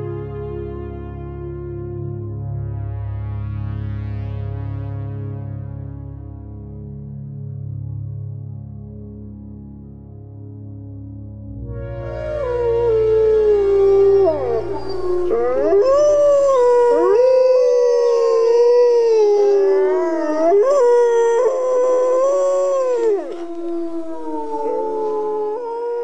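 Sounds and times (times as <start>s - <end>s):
low music drone: 0.0s - 26.0s
wolves howling: 12.0s - 26.0s.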